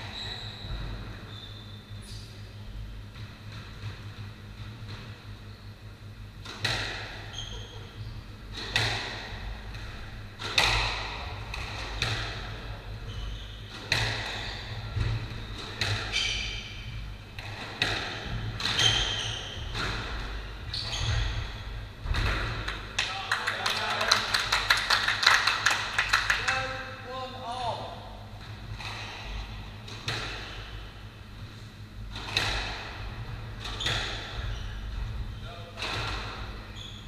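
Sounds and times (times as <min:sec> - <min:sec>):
steady low hum: 0:00.0 - 0:23.6, 0:24.2 - 0:37.0
squash ball hitting rackets and walls: 0:06.3 - 0:07.8, 0:08.4 - 0:23.0, 0:28.2 - 0:31.2, 0:31.8 - 0:37.0
shoes squeaking on wooden floor: 0:18.6 - 0:21.6.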